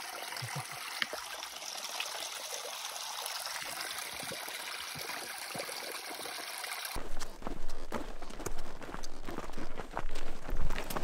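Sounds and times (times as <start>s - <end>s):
stream trickling over rocks: 0.0s - 7.0s.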